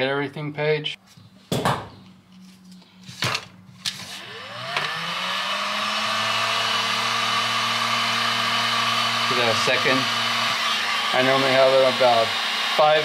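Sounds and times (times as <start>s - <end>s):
heat gun fan whining and blowing: 3.8s - 13.0s.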